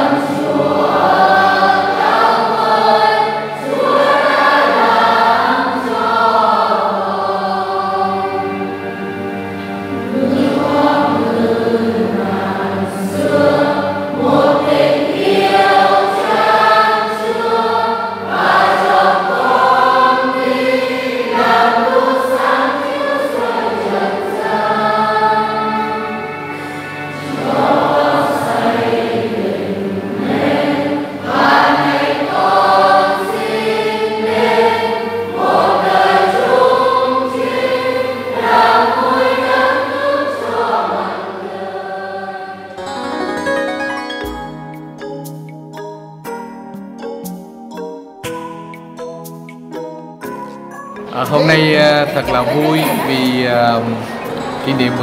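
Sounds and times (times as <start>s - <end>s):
choir singing a hymn: 0.0s - 43.4s, 51.0s - 55.0s
low accompaniment: 51.0s - 55.0s.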